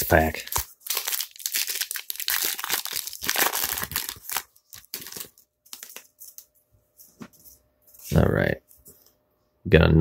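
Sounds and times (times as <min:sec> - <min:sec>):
foil wrapper crinkling and tearing: 0:00.1 - 0:06.4
cards rustling and clicking: 0:00.4 - 0:06.5.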